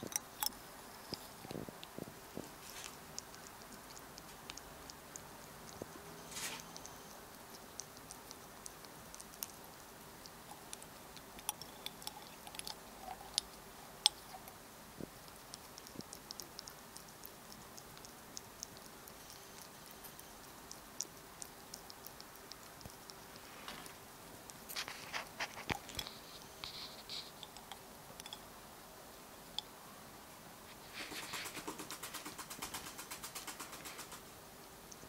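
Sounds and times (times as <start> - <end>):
animal licking wet clicks: 0.1 - 14.6, 15.2 - 28.4.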